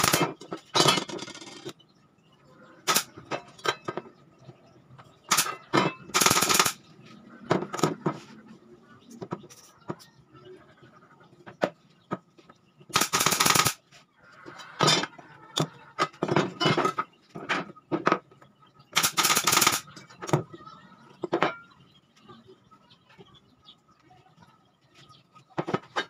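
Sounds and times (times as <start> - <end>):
rapid rattling bursts: 6.2 - 6.8, 12.9 - 13.8, 19.0 - 19.9.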